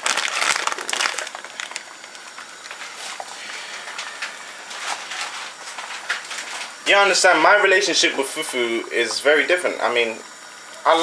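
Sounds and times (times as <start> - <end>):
plastic bag crinkling: 0.0 - 3.3.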